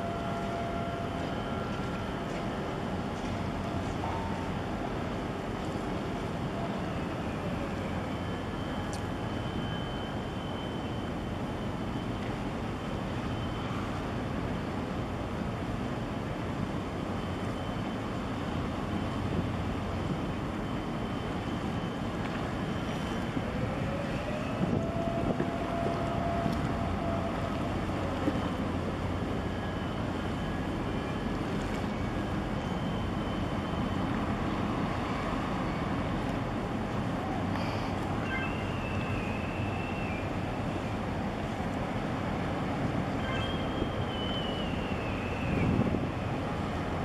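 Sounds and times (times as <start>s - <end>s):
ship engine rumble: 0.0s - 47.0s
water noise: 0.0s - 47.0s
wind: 0.0s - 47.0s
faint rising tone: 38.2s - 40.6s.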